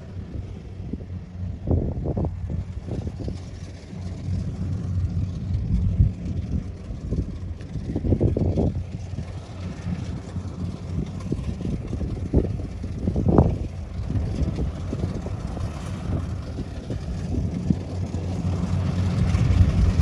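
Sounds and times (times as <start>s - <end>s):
harvester engine rumbling: 0.0s - 20.0s
wind buffeting microphone: 0.0s - 20.0s.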